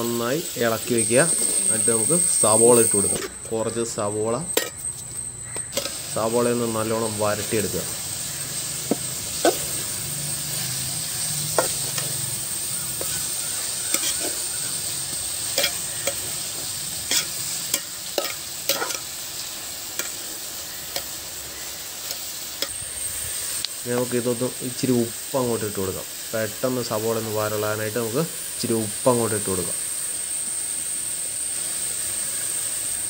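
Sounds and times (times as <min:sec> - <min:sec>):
onions sizzling: 0:00.0 - 0:33.0
spoon scraping metal pan: 0:01.3 - 0:03.8, 0:04.4 - 0:19.2.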